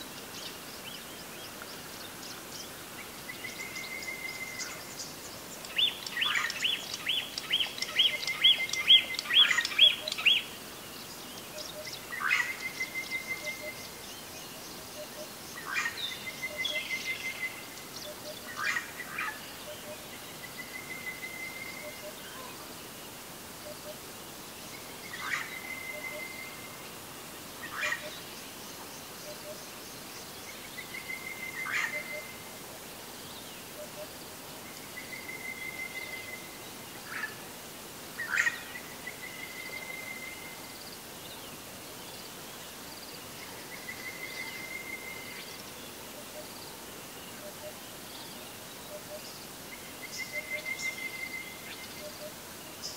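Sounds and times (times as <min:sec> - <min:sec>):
bird trills and chirps: 0:03.4 - 0:10.5.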